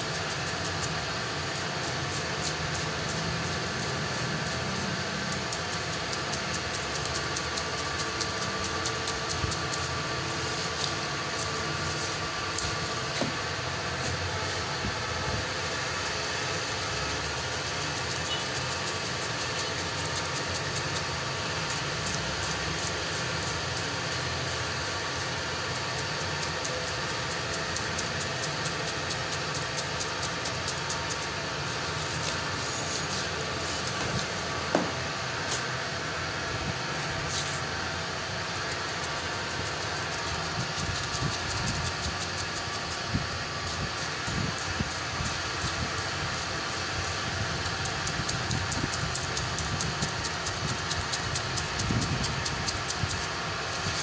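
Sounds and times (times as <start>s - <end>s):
street noise rumble with hiss: 0.0s - 54.0s
sharp knocks: 34.7s - 35.0s.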